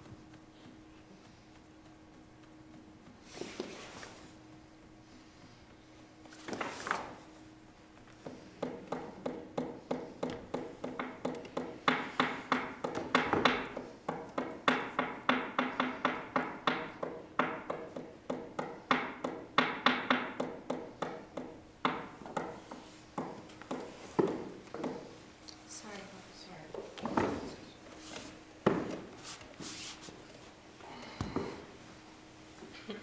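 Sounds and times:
taps and knocks on hard surface: 0:08.2 - 0:25.0, 0:28.6 - 0:29.1.

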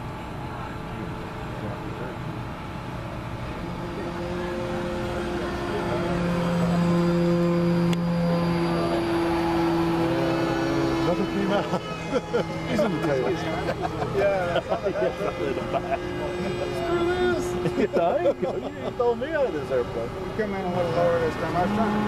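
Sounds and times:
model airplane motor humming: 0:00.7 - 0:22.0.

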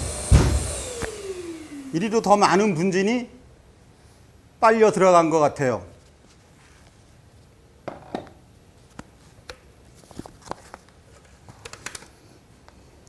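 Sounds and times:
tool set down on wooden floor: 0:07.8 - 0:08.4.

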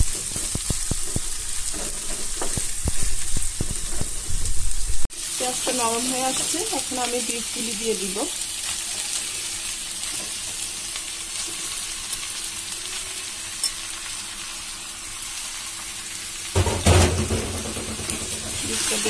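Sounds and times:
meat sizzling in a wok: 0:00.0 - 0:19.0
loud clatter: 0:16.6 - 0:18.7.

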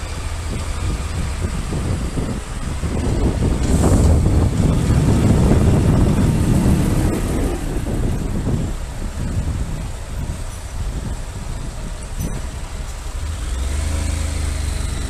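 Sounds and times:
motorcycle engine: 0:00.0 - 0:15.0
wind rumble on microphone: 0:00.0 - 0:15.0.

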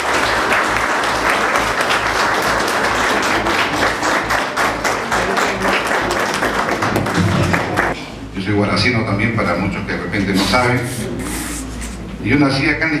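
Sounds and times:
audience applauding: 0:00.0 - 0:08.0.

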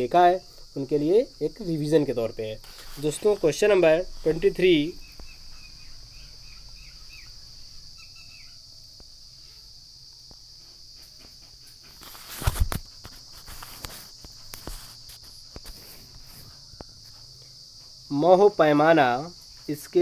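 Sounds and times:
insect chirring: 0:00.0 - 0:20.0.

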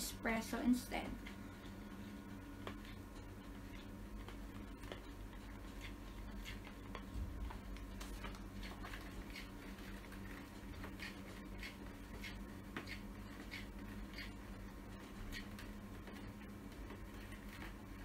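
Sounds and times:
plastic spoon stirring in a bowl: 0:02.7 - 0:14.4.

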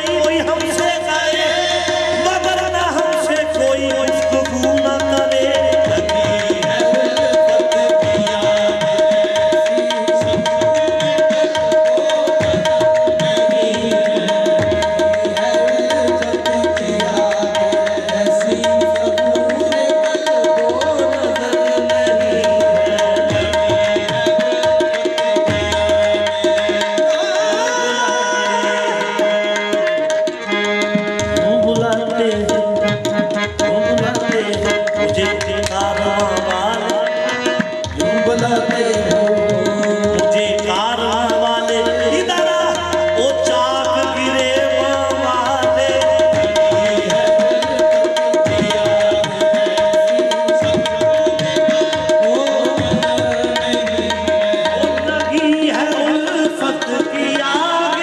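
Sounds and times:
harmonium: 0:00.0 - 0:58.0
tabla drumming: 0:00.0 - 0:58.0.

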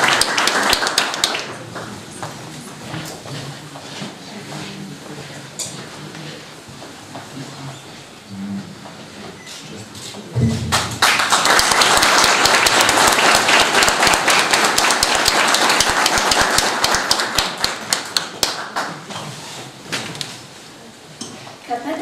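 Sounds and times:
audience applauding: 0:00.0 - 0:01.9, 0:10.7 - 0:19.1.

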